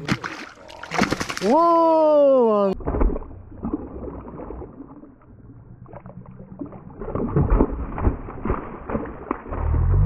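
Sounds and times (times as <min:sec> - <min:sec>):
fish splashing in water: 0:00.0 - 0:01.6, 0:06.6 - 0:09.9.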